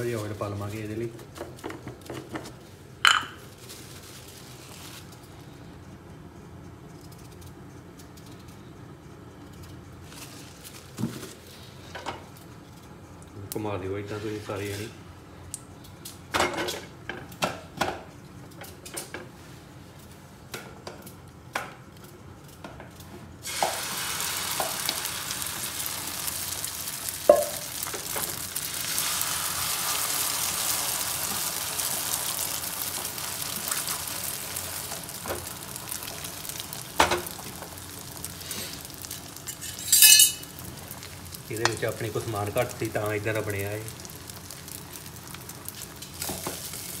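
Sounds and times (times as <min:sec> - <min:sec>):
egg sizzling in hot oil: 0:23.4 - 0:47.0
utensil clinking in pan: 0:39.4 - 0:40.6.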